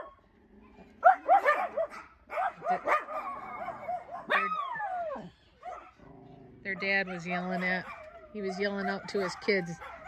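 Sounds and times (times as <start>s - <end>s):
dogs barking: 0.0s - 0.2s, 1.0s - 6.1s, 6.7s - 10.0s
dog howling: 1.0s - 6.0s, 7.0s - 10.0s.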